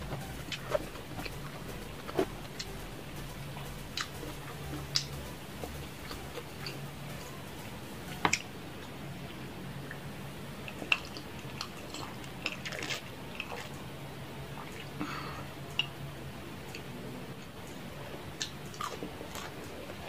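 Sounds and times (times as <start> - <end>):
chewing: 18.4 - 20.0.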